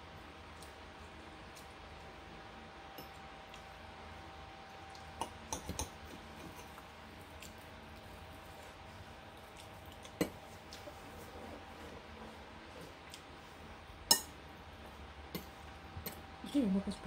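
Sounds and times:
faint room hum: 0.0s - 17.0s
cutlery clicking on plates: 5.2s - 6.7s.

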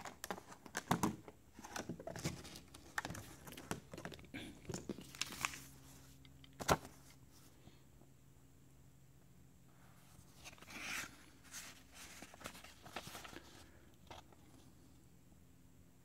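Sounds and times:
paper rustling and crinkling: 0.0s - 7.2s, 10.1s - 14.7s.

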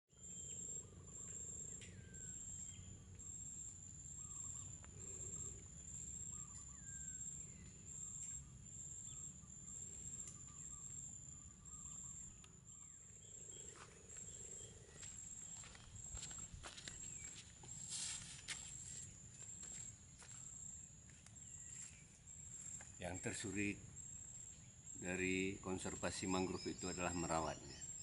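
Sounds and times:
high-pitched insect drone: 0.2s - 28.0s
birds chirping and whistling: 10.2s - 18.2s, 24.6s - 28.0s.

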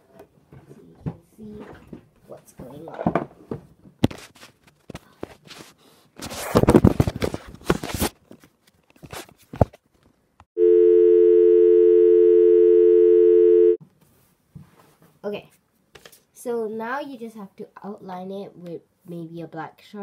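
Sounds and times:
telephone dial tone: 10.6s - 13.8s.

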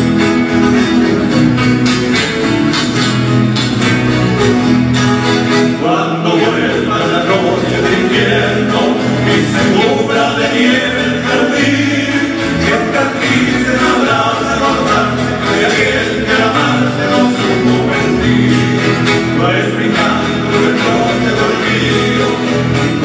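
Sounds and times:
strummed acoustic guitars: 0.0s - 23.0s
men singing together: 5.7s - 23.0s.

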